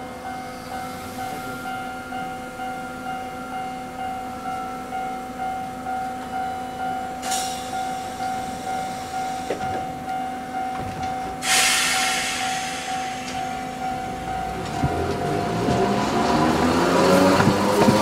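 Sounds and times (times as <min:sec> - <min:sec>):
streetcar air hiss: 0:00.4 - 0:02.0, 0:07.2 - 0:10.4, 0:11.3 - 0:15.6.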